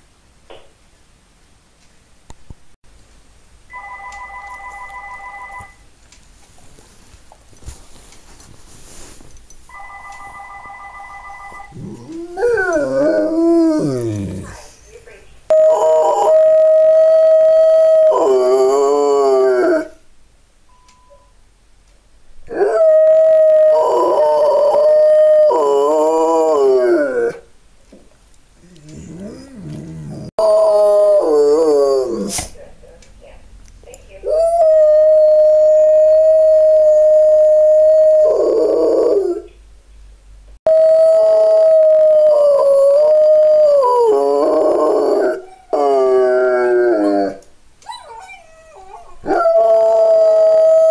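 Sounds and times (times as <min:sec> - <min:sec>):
dog howling: 0:11.7 - 0:14.5, 0:15.5 - 0:20.0, 0:22.5 - 0:27.4, 0:28.6 - 0:32.3, 0:34.3 - 0:39.5, 0:40.7 - 0:50.9.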